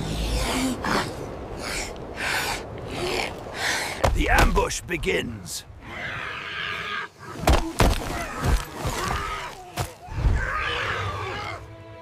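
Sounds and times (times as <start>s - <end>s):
creature cries and grunts: 5.8s - 11.7s.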